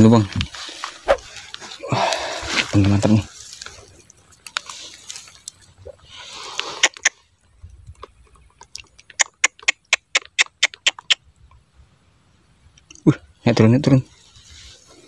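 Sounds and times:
sharp clicks: 0:07.8 - 0:11.2.

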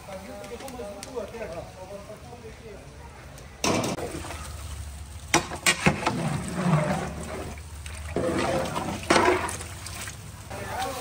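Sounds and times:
ladle stirring broth in pot: 0:05.3 - 0:10.2.

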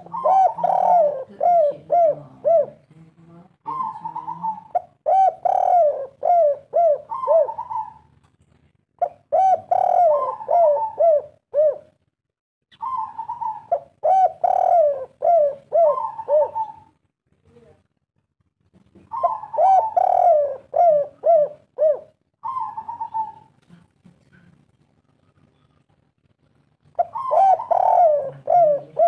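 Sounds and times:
dove cooing: 0:00.0 - 0:02.9, 0:03.7 - 0:08.2, 0:09.0 - 0:12.0, 0:12.7 - 0:17.0, 0:19.0 - 0:23.6, 0:26.9 - 0:29.0.

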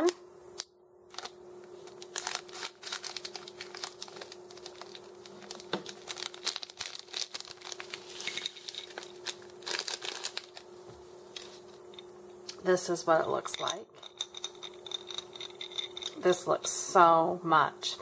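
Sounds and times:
plastic bag crinkling: 0:01.1 - 0:10.7
scissors cutting cellophane: 0:01.9 - 0:08.0.

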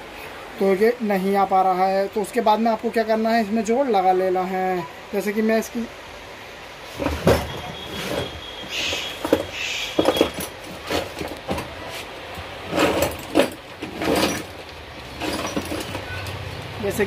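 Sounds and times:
wiring rustling: 0:07.0 - 0:17.0.

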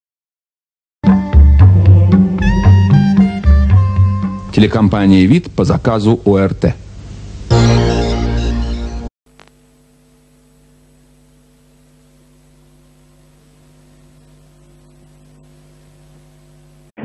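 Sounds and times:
electrical mains hum: 0:02.2 - 0:16.9.

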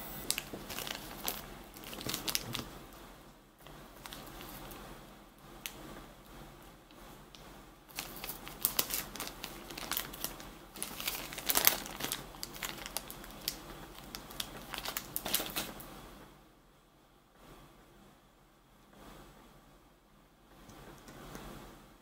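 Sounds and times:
plastic zip bag crinkling: 0:00.2 - 0:02.8, 0:04.0 - 0:04.8, 0:07.9 - 0:15.9.

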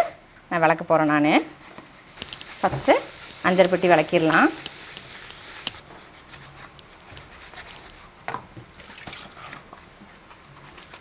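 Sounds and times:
soapy hands rubbing: 0:02.2 - 0:08.1.

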